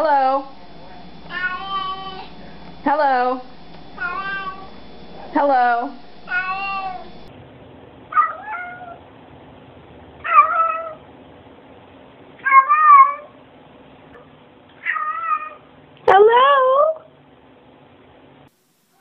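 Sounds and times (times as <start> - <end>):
cat meowing: 1.3 - 2.3, 4.0 - 4.7, 6.3 - 7.1, 8.1 - 9.0, 10.2 - 11.0, 12.4 - 13.3, 14.8 - 15.6.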